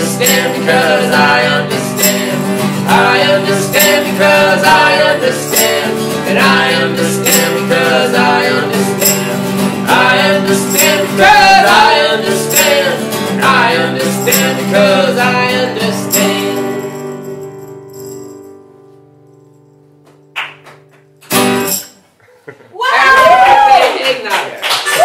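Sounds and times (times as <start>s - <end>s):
tambourine struck on the beat: 0.0s - 18.6s, 21.3s - 22.0s
strummed acoustic guitars: 0.0s - 22.0s.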